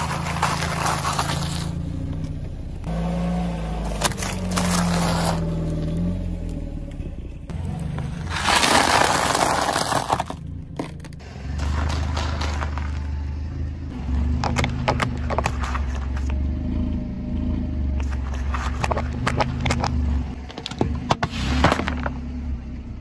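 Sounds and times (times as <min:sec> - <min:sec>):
tyre crunching brittle food: 0:00.0 - 0:01.7, 0:08.3 - 0:11.0
low car engine hum: 0:00.0 - 0:23.0.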